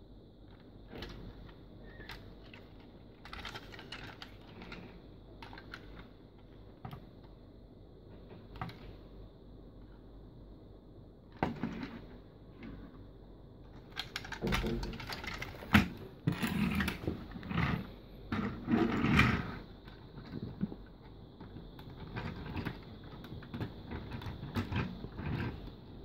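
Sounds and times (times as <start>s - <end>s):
plastic toy clicking and rattling: 2.0s - 6.0s, 13.7s - 17.1s.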